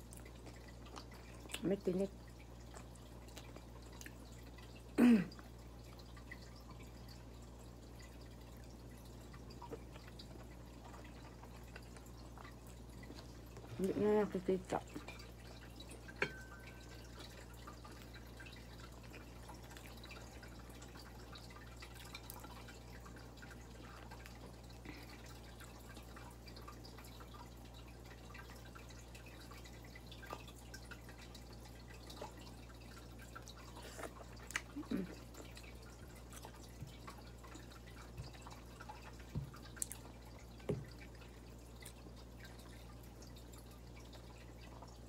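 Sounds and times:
mouth chewing and lip smacks: 0:02.7 - 0:04.2, 0:33.5 - 0:40.4.

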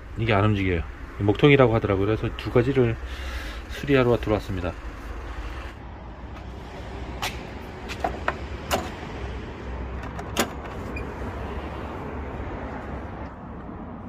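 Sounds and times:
sharp clicks and knocks: 0:07.2 - 0:09.1, 0:09.9 - 0:10.9.

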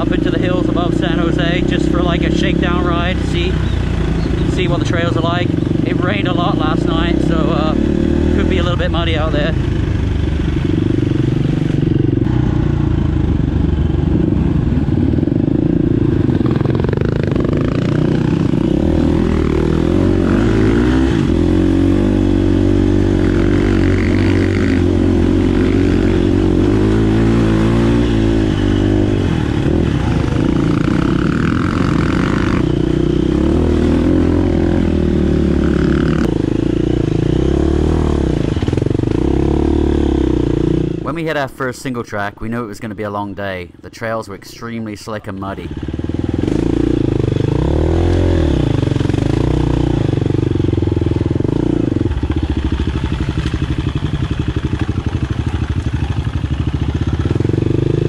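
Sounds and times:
dirt bike engine revving: 0:00.0 - 0:43.2, 0:44.0 - 0:58.0.

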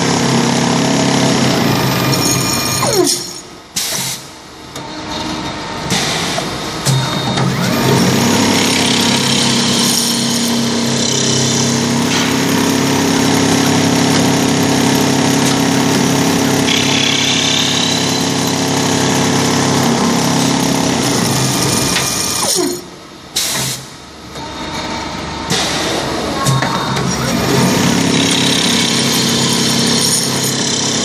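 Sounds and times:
lathe motor hum: 0:07.4 - 0:22.5, 0:26.4 - 0:31.0.

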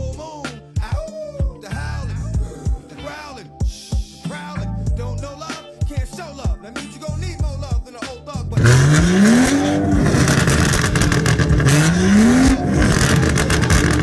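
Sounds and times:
rap music: 0:00.0 - 0:14.0
car engine revving: 0:08.6 - 0:14.0.

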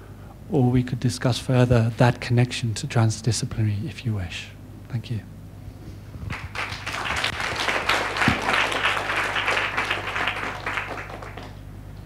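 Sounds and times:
audience applauding: 0:06.3 - 0:11.7.

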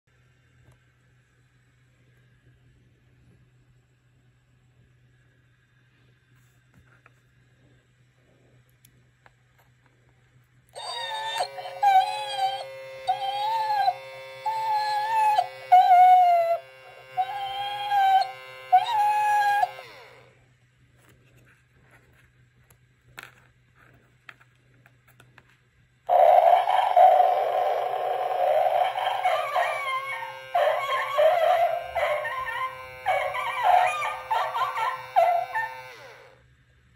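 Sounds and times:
wavering howl-like calls: 0:10.8 - 0:20.3, 0:26.1 - 0:36.4
toy droning electronic tone: 0:10.8 - 0:20.4, 0:26.1 - 0:36.4
recorded dog growls barks howls: 0:28.4 - 0:35.9.

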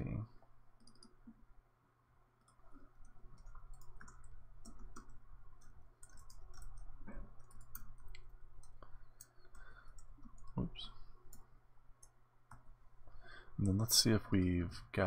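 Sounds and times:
keyboard typing clicks: 0:00.8 - 0:01.4, 0:02.4 - 0:10.6.

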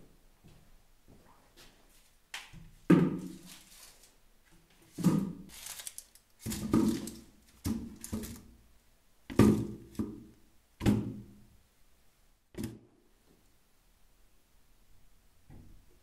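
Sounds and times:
vegetables thunking into plastic bucket: 0:05.0 - 0:05.5, 0:06.4 - 0:08.5, 0:09.3 - 0:11.2.

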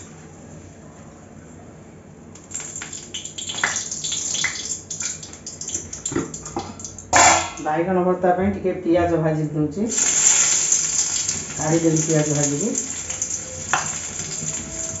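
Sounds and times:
low steady hum: 0:00.0 - 0:15.0
oil sizzling: 0:02.3 - 0:07.6, 0:09.9 - 0:15.0.

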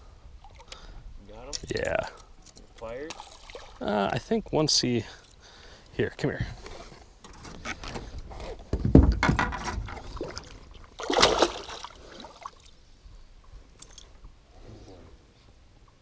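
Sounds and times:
thumping and rustling: 0:07.2 - 0:10.5
fish splashing in water: 0:10.0 - 0:12.7.

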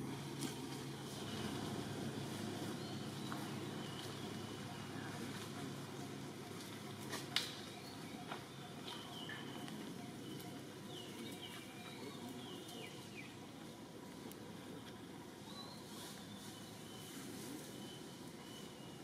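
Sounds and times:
low background noise: 0:00.0 - 0:19.0.

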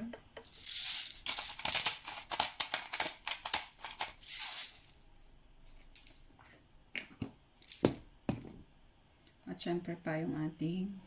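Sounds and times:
pepper grinder crunching: 0:00.4 - 0:05.0.

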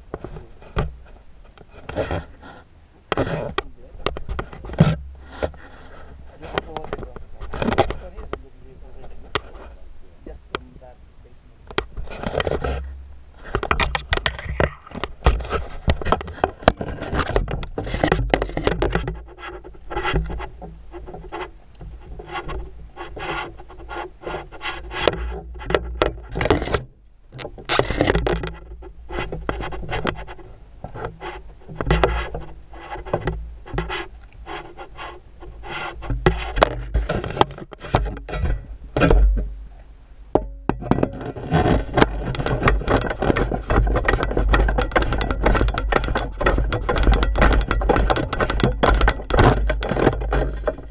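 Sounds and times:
camera rubbing and scraping: 0:00.0 - 0:10.9, 0:11.7 - 0:39.7, 0:40.7 - 0:50.9.

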